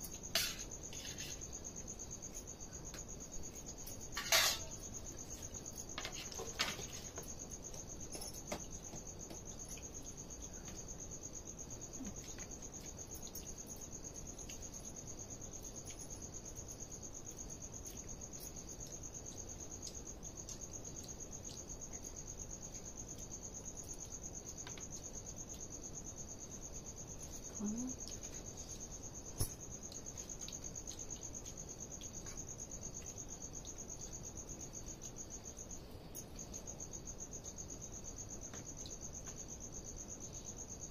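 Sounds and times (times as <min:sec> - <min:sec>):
crickets trilling: 0:00.0 - 0:40.9.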